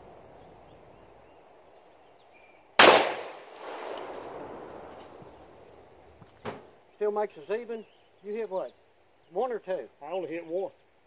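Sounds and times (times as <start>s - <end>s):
pistol shot echoing: 2.8s - 5.6s.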